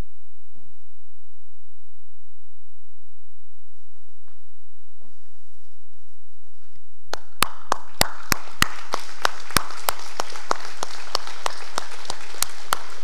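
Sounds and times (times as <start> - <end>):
nearby steady claps: 7.1 - 13.0
congregation applauding: 7.2 - 13.0.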